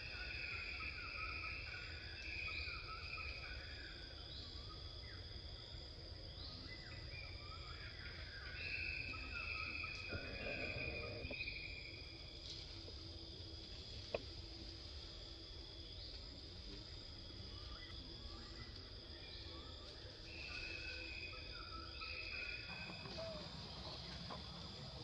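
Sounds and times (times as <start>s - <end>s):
insects chirring: 0.0s - 25.0s
rustle: 12.4s - 15.2s.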